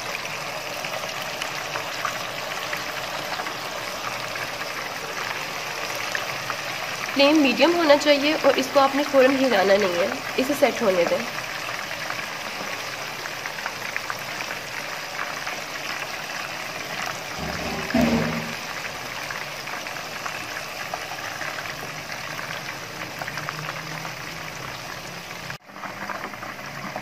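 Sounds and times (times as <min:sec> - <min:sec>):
meat sizzling in hot oil: 0:00.0 - 0:27.0.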